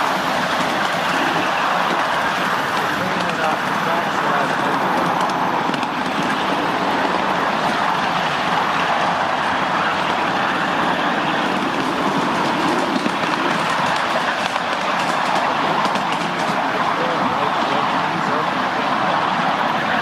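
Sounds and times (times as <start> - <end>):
train wheels rolling on rails: 0.0 - 20.0.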